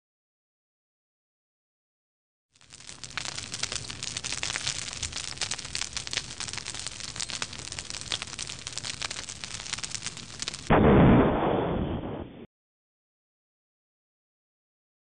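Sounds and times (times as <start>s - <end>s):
fire crackling and popping: 2.6s - 11.8s.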